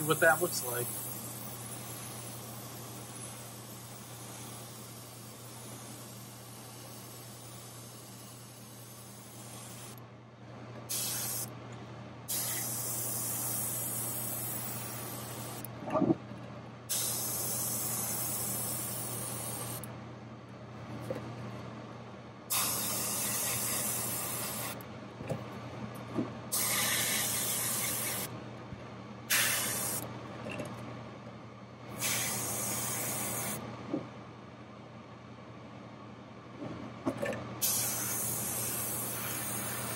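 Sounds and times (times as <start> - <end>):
airbrush spraying hiss: 0.0 - 10.0, 10.9 - 11.5, 12.3 - 15.7, 16.9 - 19.8, 22.5 - 24.8, 26.5 - 28.3, 29.3 - 30.0, 32.0 - 33.6, 37.6 - 39.9.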